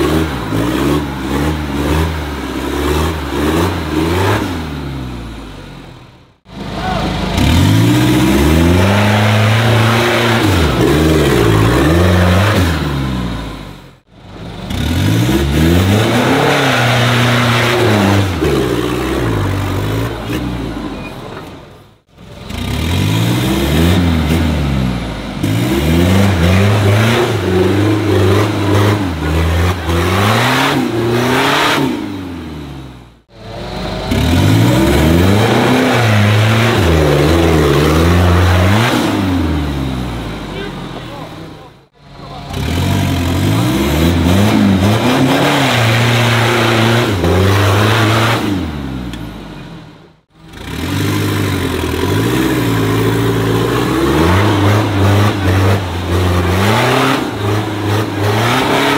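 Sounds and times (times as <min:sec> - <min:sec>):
off-road engine revving: 0:00.0 - 0:58.9.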